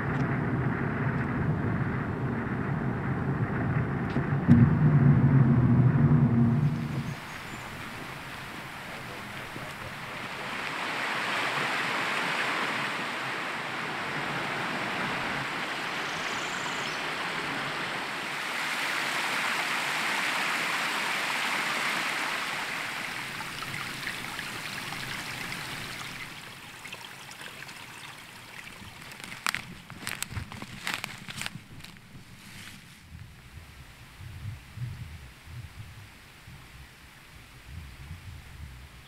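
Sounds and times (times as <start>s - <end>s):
stream rushing over rocks: 6.8s - 32.9s.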